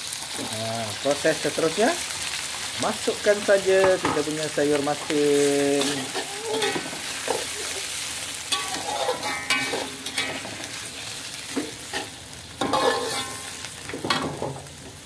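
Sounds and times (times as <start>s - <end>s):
greens sizzling in a wok: 0.0s - 15.0s
metal spatula scraping a wok: 5.5s - 14.4s.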